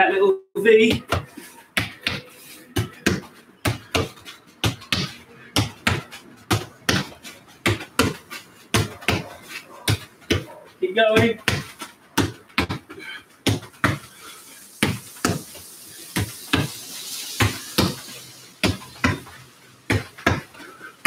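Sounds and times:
football kicks and rebound thuds: 0.8 - 14.1, 14.8 - 15.5, 17.4 - 18.0, 18.6 - 20.6.

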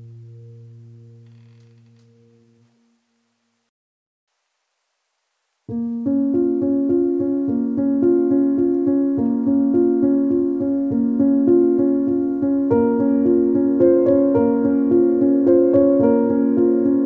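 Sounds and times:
keyboard music with steady beat: 5.8 - 17.0.

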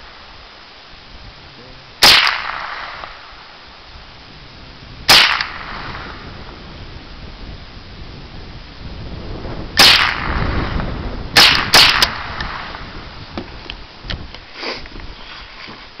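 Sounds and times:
rifle shots: 2.0 - 3.4, 5.1 - 6.2, 9.8 - 12.8.

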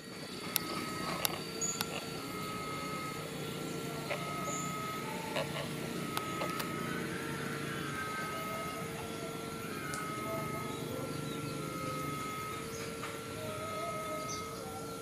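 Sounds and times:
distant engine running: 0.0 - 15.0
sharp clicks: 0.1 - 7.0.

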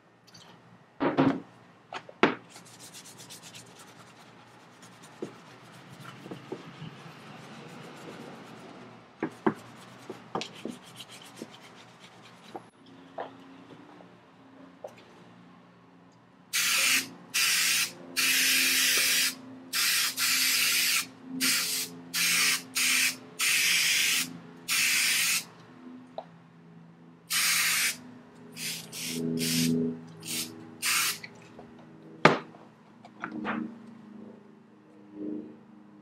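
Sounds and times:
aerosol spray hissing: 16.6 - 25.4, 27.3 - 28.0, 28.6 - 31.2.

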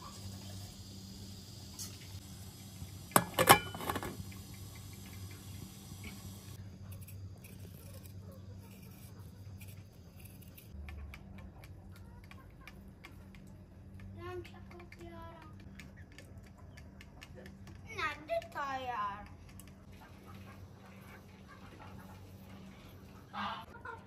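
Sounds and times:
knife paring a potato: 6.7 - 10.8.

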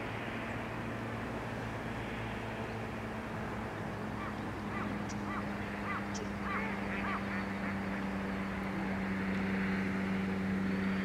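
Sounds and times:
steady low hum: 0.0 - 11.0
waterbird calls: 4.1 - 8.3.

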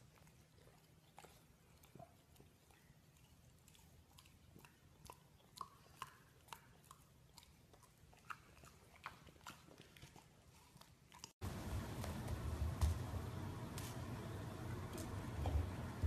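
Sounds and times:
puppy mouth noises: 0.0 - 11.4.

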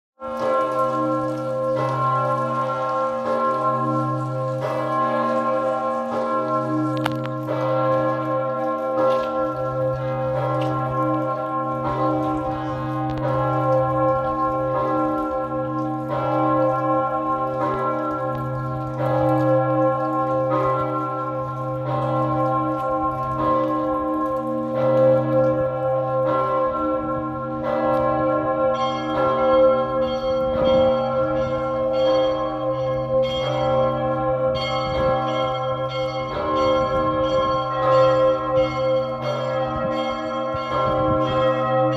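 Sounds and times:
large church bell ringing: 0.2 - 41.9.

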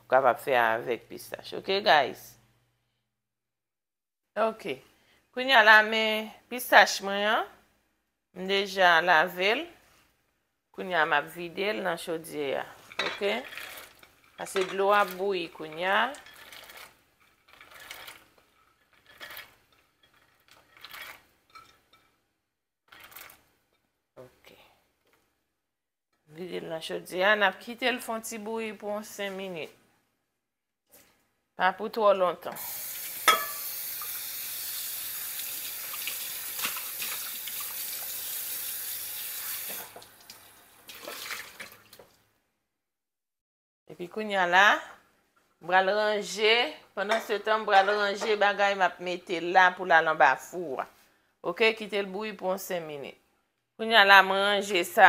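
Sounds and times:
metal pot and utensil clattering: 12.8 - 22.2, 33.2 - 34.2
water running from a tap: 32.6 - 42.2.

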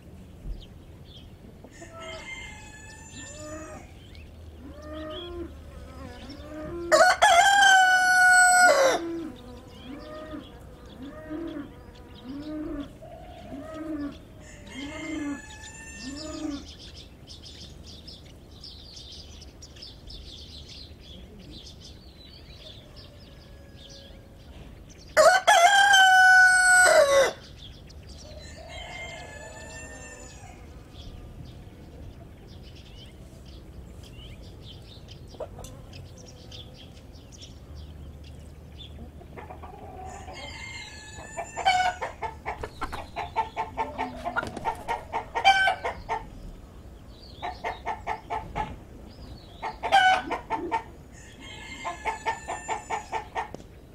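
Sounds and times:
hen clucking: 1.4 - 16.8, 35.3 - 36.5, 38.9 - 53.7
rooster crowing: 1.7 - 3.9, 6.2 - 11.6, 12.4 - 16.7, 22.6 - 24.4, 25.2 - 27.5, 28.3 - 30.8, 39.8 - 42.4, 51.1 - 53.2.

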